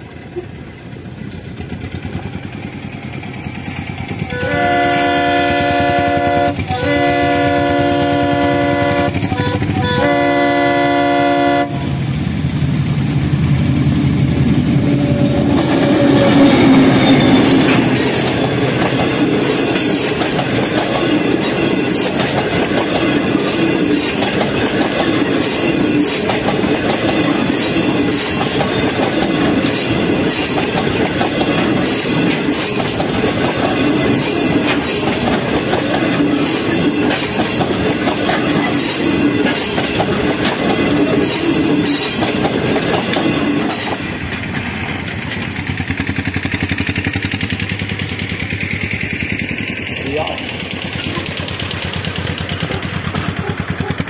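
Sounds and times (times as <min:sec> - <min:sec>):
train wheels clicking over rail joints: 0:00.0 - 0:10.2, 0:12.0 - 0:54.0
diesel locomotive engine passing: 0:00.0 - 0:54.0
locomotive horn blasts: 0:04.3 - 0:12.0.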